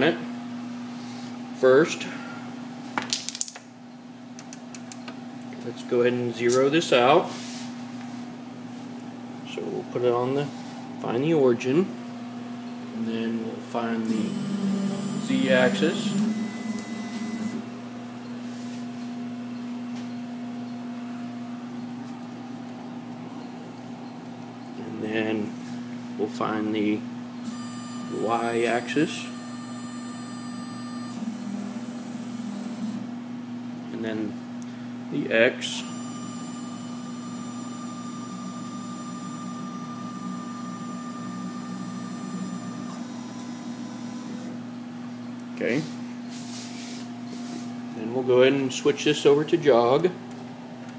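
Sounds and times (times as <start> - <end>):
constant low hum: 0.0 - 7.0
cnc mill humming: 13.3 - 18.3, 35.8 - 45.0.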